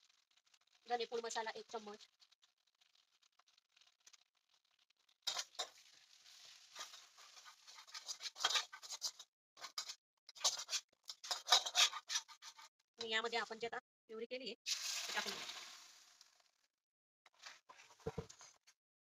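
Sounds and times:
spices sizzling in oil: 0.0 - 13.2, 14.6 - 16.6, 17.3 - 18.7
metal spatula scraping a wok: 5.3 - 12.7, 14.7 - 16.1.

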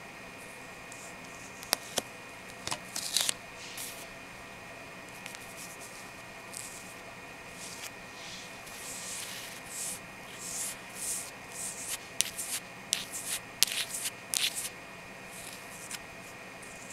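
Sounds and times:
fingernails scratching: 8.7 - 14.7.

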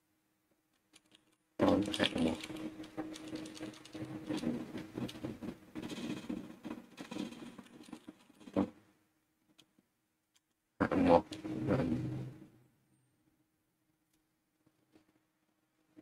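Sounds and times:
computer keyboard typing: 0.9 - 8.7
low steady hum: 10.8 - 13.2.

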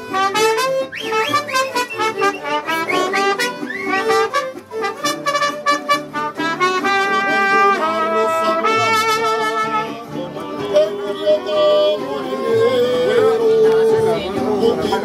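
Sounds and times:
trumpets playing: 0.0 - 10.1
guitar: 0.0 - 15.0
violin: 0.0 - 15.0.

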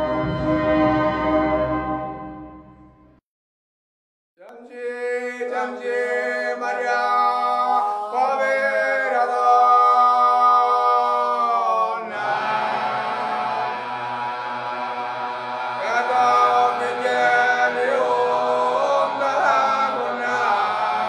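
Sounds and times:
men's chorus singing: 5.0 - 21.0.

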